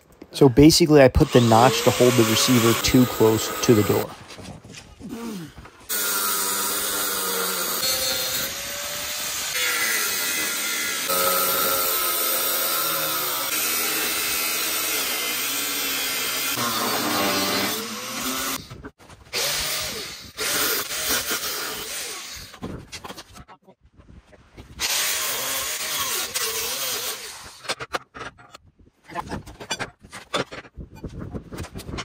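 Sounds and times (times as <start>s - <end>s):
angle grinder cutting steel: 1.2s - 4.1s, 5.9s - 18.8s, 19.4s - 22.5s, 24.8s - 27.8s.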